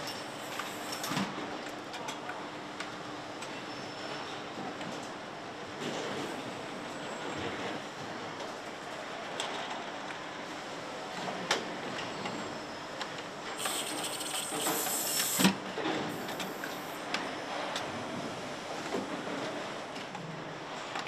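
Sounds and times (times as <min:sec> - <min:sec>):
air hiss: 0:13.6 - 0:15.5
steady machine noise: 0:13.6 - 0:15.5.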